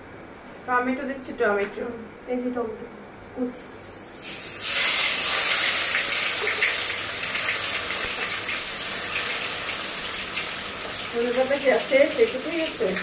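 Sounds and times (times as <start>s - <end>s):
tomatoes sizzling in hot oil: 3.8s - 13.0s.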